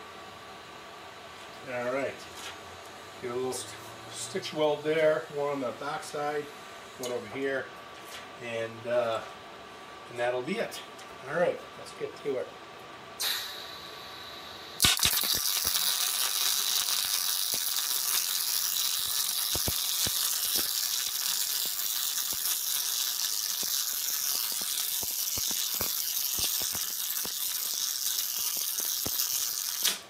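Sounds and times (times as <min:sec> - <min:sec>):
welding spatter pops: 0:13.2 - 0:13.8, 0:14.8 - 0:30.0
welder arc crackling: 0:13.2 - 0:30.0.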